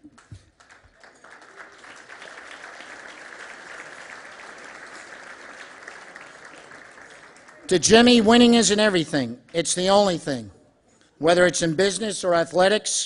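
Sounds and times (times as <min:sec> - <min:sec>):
audience applauding: 0:00.0 - 0:08.9.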